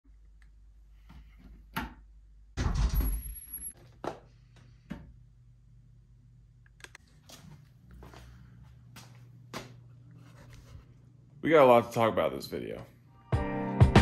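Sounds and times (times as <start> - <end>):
low steady hum: 0.1 - 13.2
door rattling open: 2.6 - 3.4.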